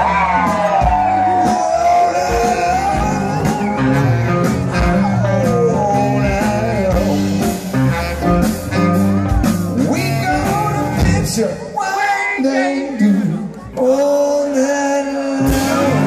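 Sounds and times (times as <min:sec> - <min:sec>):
bass and drums: 0:00.0 - 0:11.8, 0:15.4 - 0:16.0
saxophone: 0:00.8 - 0:11.2.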